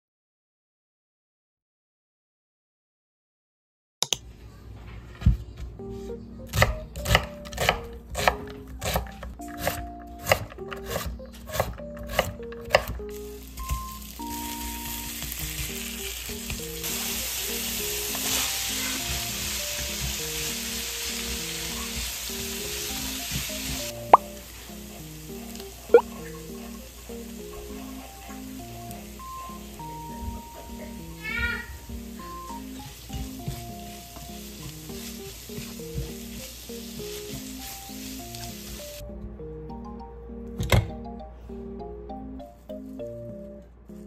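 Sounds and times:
background music: 5.7 - 44.0
knife chopping on wooden board: 6.5 - 13.0
meat sizzling in a frying pan: 13.1 - 39.0.

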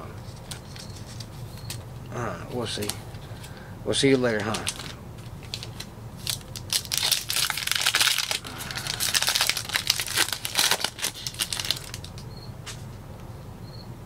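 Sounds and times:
foil wrapper crinkling: 2.6 - 12.2.

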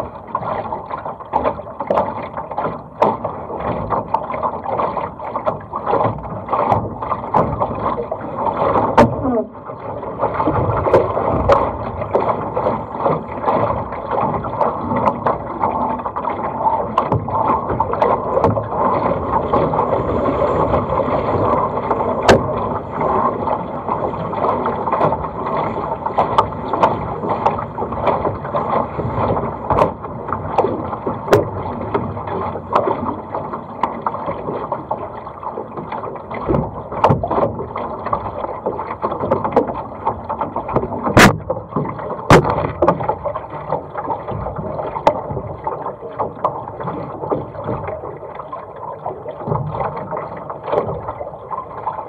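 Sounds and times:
water rushing along hull: 0.0 - 52.0
sharp knocks and clicks: 16.9 - 19.7, 26.2 - 33.1, 36.4 - 38.2, 38.9 - 45.6.

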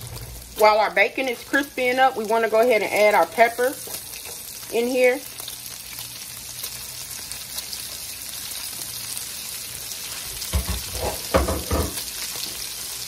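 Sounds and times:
bacon and peppers sizzling: 0.0 - 13.0.

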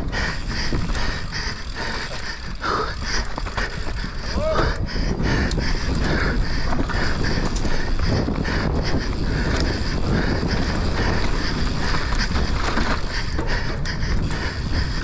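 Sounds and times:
bike tyre noise: 0.0 - 15.0
wind rush on microphone: 0.0 - 15.0
bike knocks and rattles: 0.5 - 15.0.

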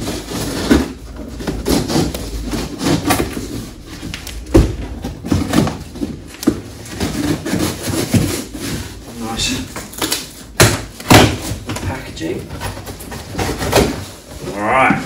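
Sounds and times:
knife scraping taped cardboard: 0.0 - 4.5, 6.4 - 11.6
cardboard rustling: 0.0 - 15.0.

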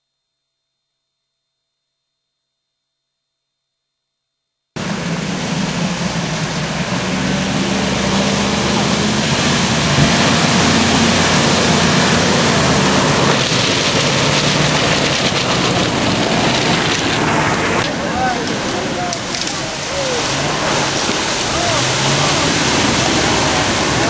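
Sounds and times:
loud rushing noise: 4.8 - 24.0
truck engine running: 4.8 - 24.0.

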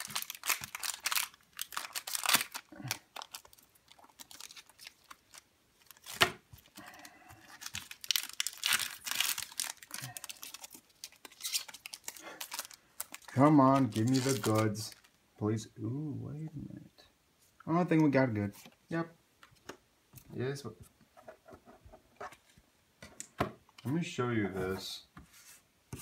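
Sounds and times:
foil wrapper crinkling and tearing: 0.0 - 15.2.

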